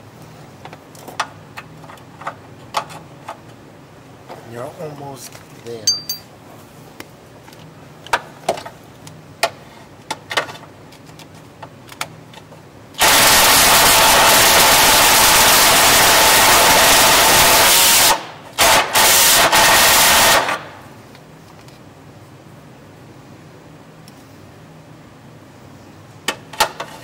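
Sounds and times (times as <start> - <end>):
tool knocking against metal: 5.9 - 6.2.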